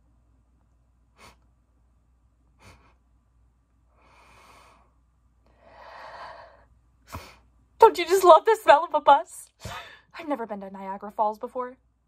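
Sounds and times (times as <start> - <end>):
woman breathing in: 3.9 - 7.4.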